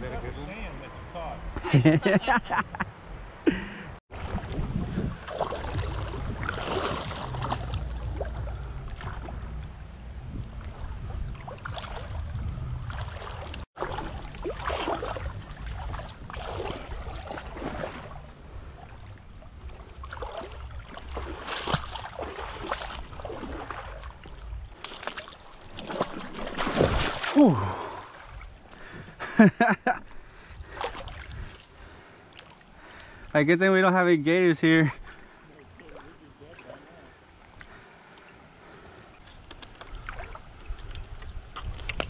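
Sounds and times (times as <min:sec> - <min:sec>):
loud splash: 0:04.1 - 0:08.4, 0:12.9 - 0:18.2, 0:20.1 - 0:24.1, 0:25.0 - 0:28.4
low rumble: 0:04.1 - 0:24.8
water sloshing from wading: 0:04.1 - 0:29.4, 0:30.0 - 0:33.3, 0:35.0 - 0:42.0.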